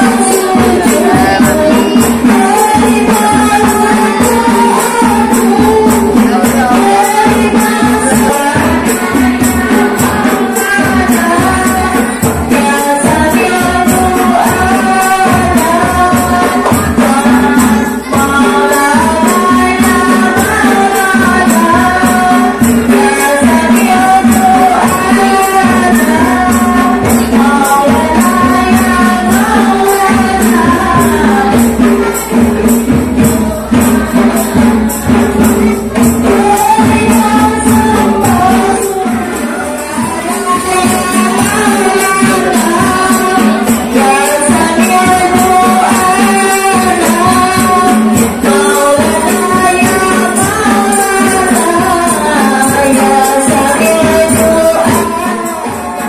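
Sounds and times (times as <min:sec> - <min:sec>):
frame drum beat: 0:00.0 - 0:56.0
person singing melismatic melody: 0:00.0 - 0:56.0.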